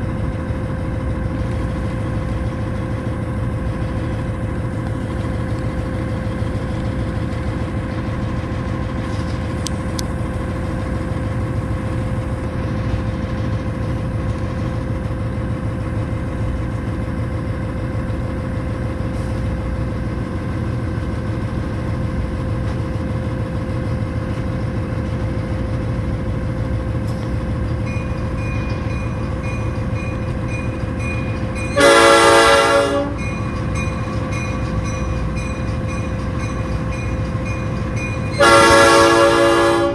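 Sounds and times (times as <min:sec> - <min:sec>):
diesel locomotive running: 0:00.0 - 0:39.9
locomotive air horn blast: 0:31.8 - 0:33.2, 0:38.4 - 0:39.9.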